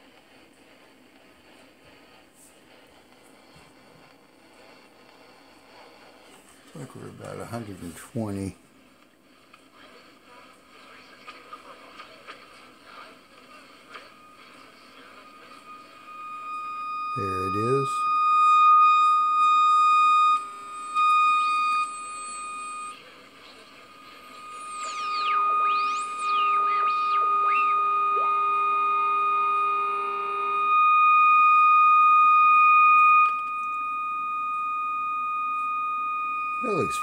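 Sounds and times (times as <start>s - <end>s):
lower steady tone: 13.8s - 37.0s
high whistle-like test tone: 15.3s - 37.0s
whistles sweeping down and up: 24.1s - 33.3s.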